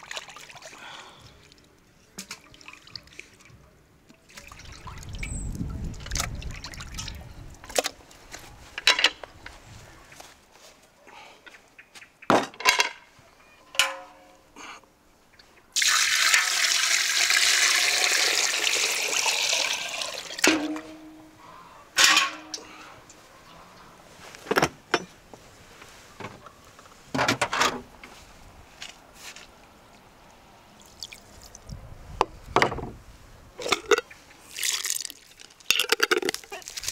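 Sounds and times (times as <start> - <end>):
water pouring into metal pot: 15.8 - 20.5.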